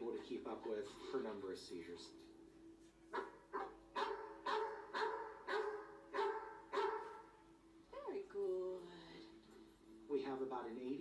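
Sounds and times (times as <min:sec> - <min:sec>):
dog barking through tv speaker: 0:03.1 - 0:07.3.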